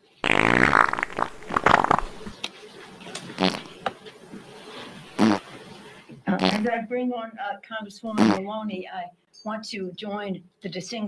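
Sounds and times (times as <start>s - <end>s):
buzzy fart noise: 0.2s - 2.4s, 3.4s - 3.9s, 5.0s - 5.6s, 6.3s - 6.8s, 8.2s - 8.4s.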